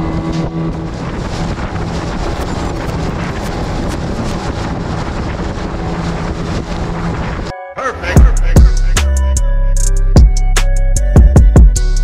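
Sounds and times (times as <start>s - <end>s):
outboard motor running: 0.0s - 7.5s
water splashing along hull: 0.0s - 7.5s
wind buffeting microphone: 0.0s - 7.5s.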